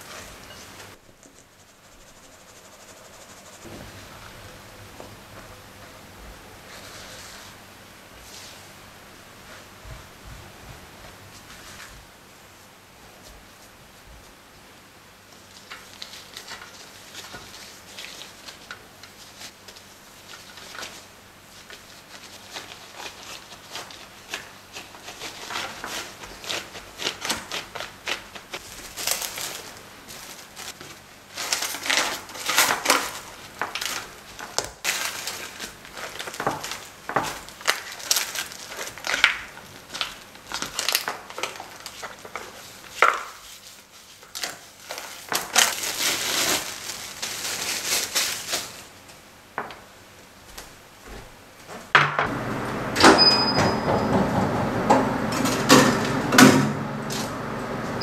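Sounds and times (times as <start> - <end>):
plastic wrap crinkling: 15.3 - 49.2.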